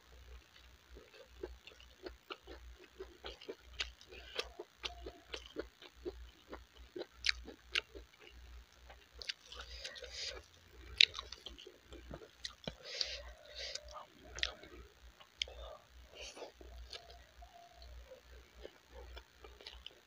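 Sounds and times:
wet chewing and lip smacks: 1.0s - 15.6s.

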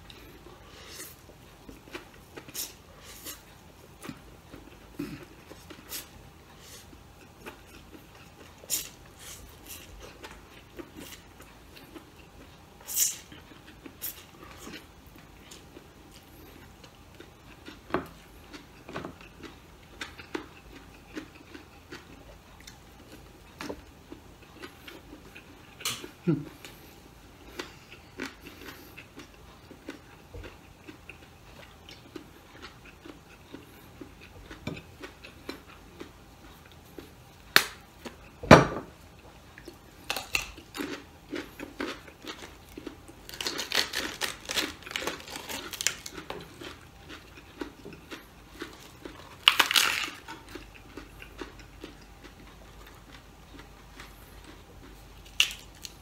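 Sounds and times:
chewing raw vegetables: 0.0s - 38.4s, 39.0s - 56.0s
crisp crackling: 43.2s - 46.3s, 48.8s - 50.3s
lettuce leaves tearing: 43.3s - 46.1s.

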